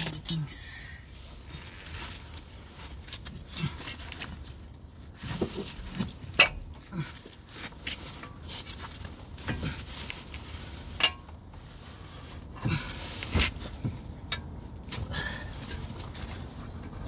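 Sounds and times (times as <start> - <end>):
metallic clinks and knocks: 0.0 - 0.7.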